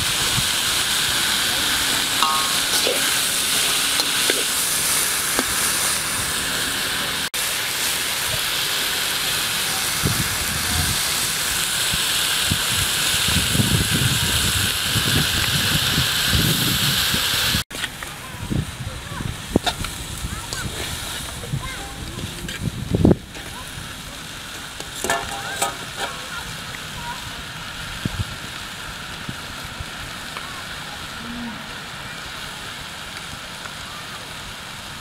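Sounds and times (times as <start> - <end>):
greens sizzling in a wok: 0.0 - 35.0
tongs knocking: 2.2 - 3.1, 25.0 - 26.1.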